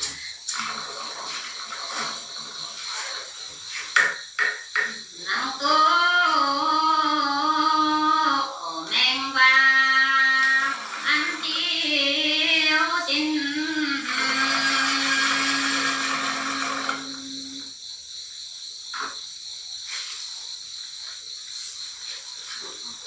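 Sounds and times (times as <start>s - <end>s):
woman singing folk song: 5.2s - 17.7s
background hiss: 15.4s - 23.0s.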